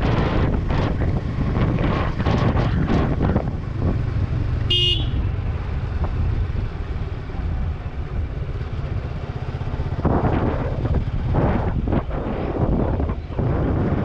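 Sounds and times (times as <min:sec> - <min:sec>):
motorcycle engine running: 0:00.0 - 0:14.0
wind on microphone: 0:00.0 - 0:14.0
motorcycle horn toot: 0:04.7 - 0:05.3.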